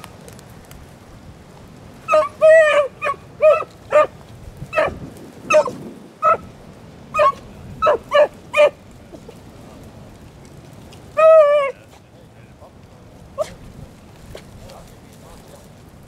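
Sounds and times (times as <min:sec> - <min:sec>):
hounds barking: 0:02.0 - 0:09.4, 0:11.2 - 0:11.8, 0:13.4 - 0:13.6, 0:14.6 - 0:15.8.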